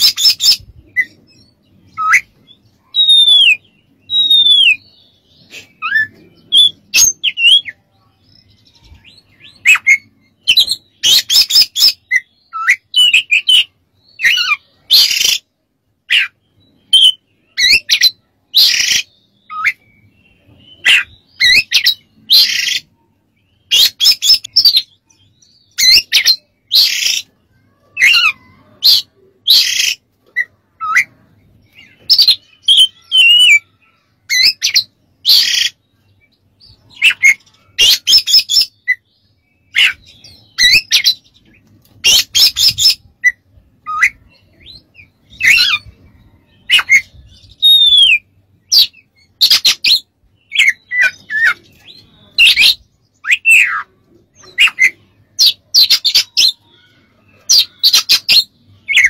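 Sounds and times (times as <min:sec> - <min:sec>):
bird singing whistled notes: 0:00.0 - 0:15.4, 0:16.1 - 0:27.3, 0:28.0 - 0:41.3, 0:42.0 - 0:59.0.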